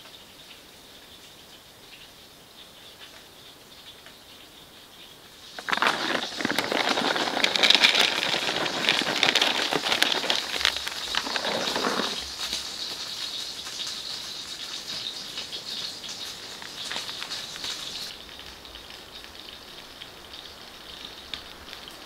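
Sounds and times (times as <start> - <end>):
dog eating kibble: 5.5 - 12.7
kibble poured into plastic dish: 5.5 - 14.1.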